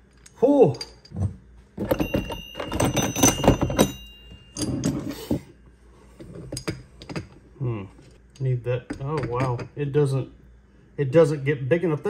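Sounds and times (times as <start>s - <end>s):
steel pieces clinking: 1.8s - 5.3s.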